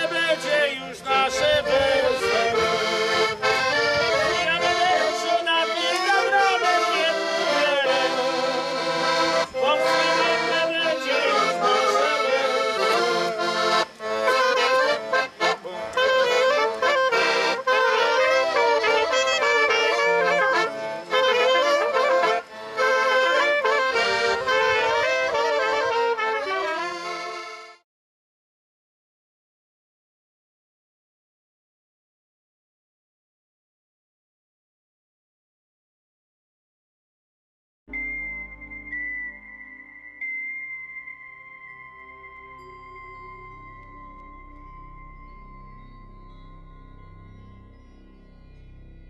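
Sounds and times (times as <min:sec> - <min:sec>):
accordion: 0:00.0 - 0:27.8
clarinet: 0:00.0 - 0:27.8, 0:37.9 - 0:49.0
trumpet: 0:00.0 - 0:27.8.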